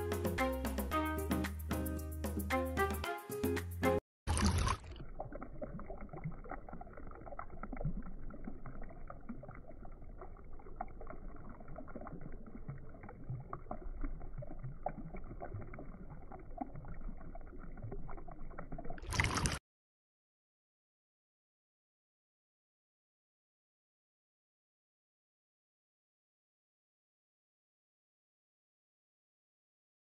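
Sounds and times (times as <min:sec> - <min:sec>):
fountain water trickling: 0:04.3 - 0:19.6.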